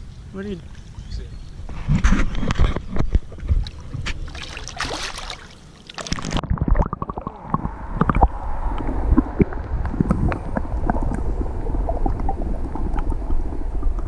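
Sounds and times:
water splashing and sloshing: 1.7 - 14.0
muffled underwater gurgling: 6.2 - 14.0.

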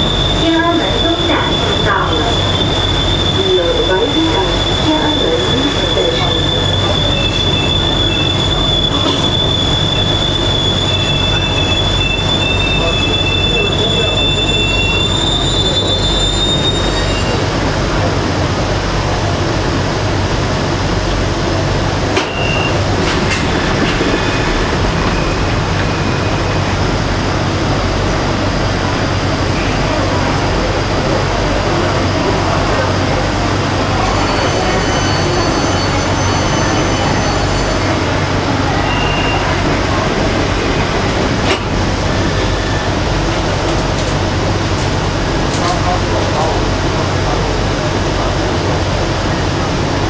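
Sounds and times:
high steady squealing tone: 0.0 - 17.5, 22.2 - 27.4, 33.9 - 41.2
subway train low rumble: 0.0 - 50.0.

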